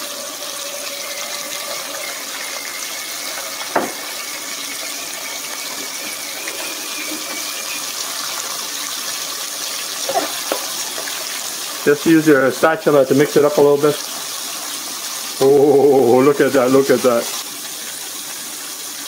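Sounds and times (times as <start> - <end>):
deep-frying sizzle: 0.0 - 19.0
sharp knock: 3.7 - 4.0.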